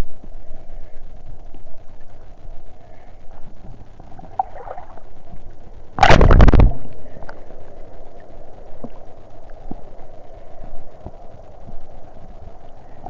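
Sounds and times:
sea water sloshing: 0:04.1 - 0:05.4.

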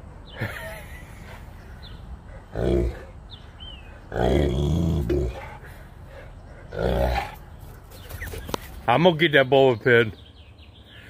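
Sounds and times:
puppy growling: 0:03.8 - 0:05.7.

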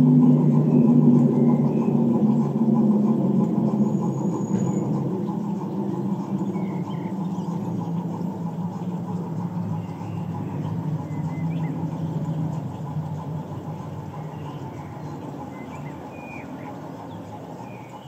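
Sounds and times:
bird chirps: 0:00.0 - 0:18.0
model train rumbling on track: 0:00.0 - 0:18.0.

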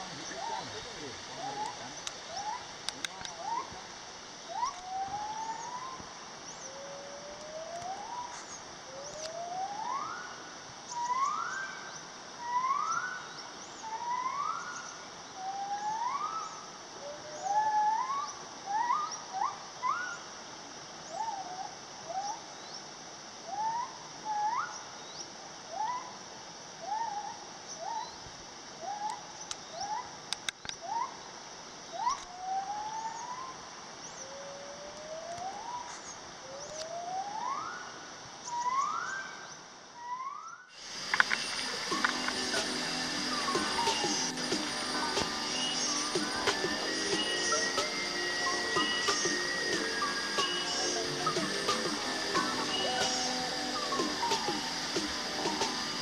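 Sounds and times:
steady high drone: 0:40.7 - 0:56.0.

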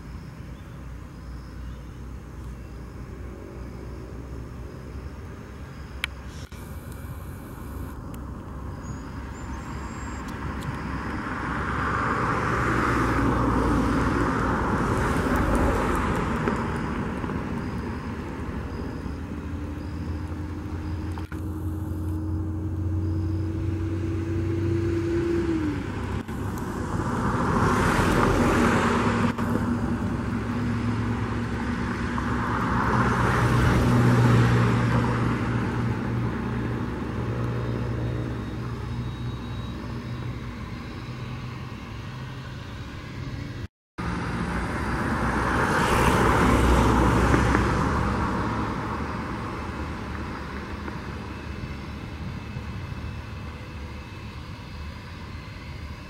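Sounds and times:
steady whine: 0:00.0 - 0:56.0.

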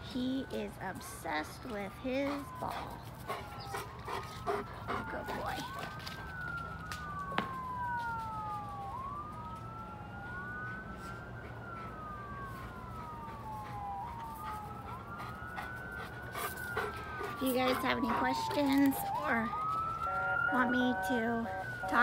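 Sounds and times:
emergency vehicle sirens wailing: 0:00.0 - 0:22.0.

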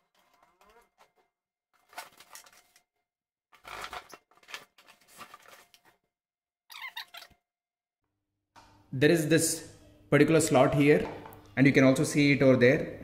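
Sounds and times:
cardboard and plastic rustling: 0:00.0 - 0:02.9, 0:03.5 - 0:06.1.

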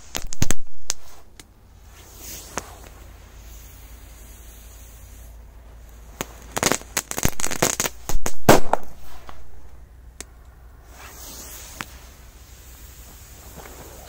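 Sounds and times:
firecracker pops and crackles: 0:00.0 - 0:03.0, 0:05.8 - 0:14.0.

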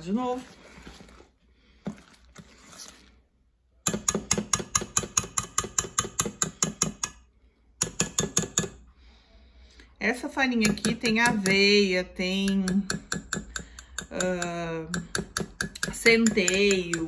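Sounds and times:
whisk clicking against steel bowl: 0:03.9 - 0:07.2, 0:07.8 - 0:08.8, 0:10.6 - 0:11.8, 0:12.4 - 0:17.0.

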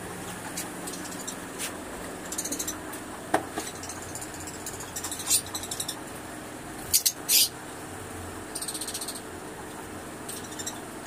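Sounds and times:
lovebirds chirping: 0:00.6 - 0:06.1, 0:06.8 - 0:07.6, 0:08.5 - 0:11.0
sharp bird calls: 0:02.2 - 0:02.9, 0:03.6 - 0:06.0, 0:06.9 - 0:07.6, 0:08.5 - 0:09.3, 0:10.3 - 0:10.9.

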